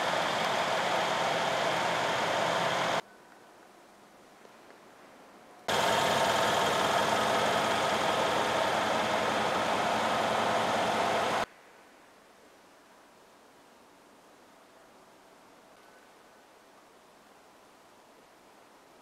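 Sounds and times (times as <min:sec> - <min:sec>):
car engine idling: 0:00.0 - 0:03.0, 0:05.7 - 0:11.5
faint hiss: 0:00.0 - 0:19.0.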